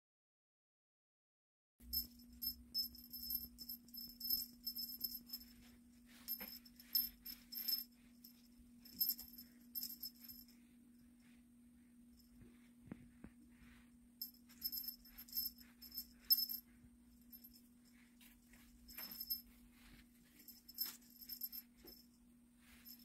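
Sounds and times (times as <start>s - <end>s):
jingle bell jingling: 1.8s - 10.6s, 14.2s - 22.1s, 22.7s - 23.0s.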